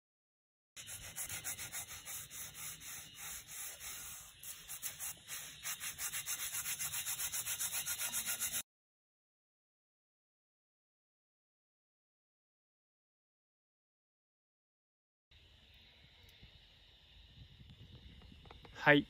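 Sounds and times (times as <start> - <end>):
wire brush scrubbing iron: 0.8 - 8.6.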